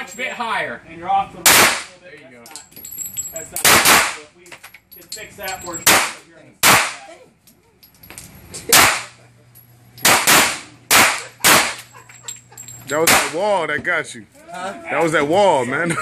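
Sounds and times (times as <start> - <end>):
pistol shots echoing indoors: 10.0 - 11.9.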